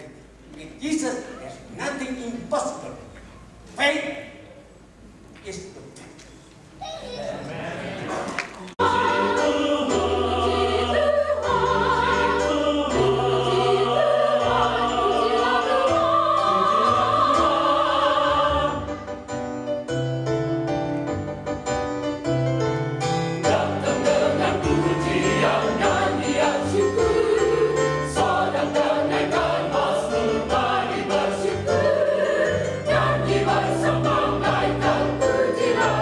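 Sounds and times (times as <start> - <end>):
mixed choir singing: 7.6 - 19.2, 23.4 - 36.0.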